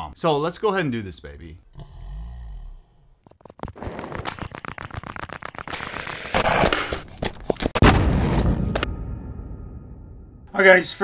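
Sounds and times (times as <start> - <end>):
rapid sharp clicks and hits: 3.3 - 7.9.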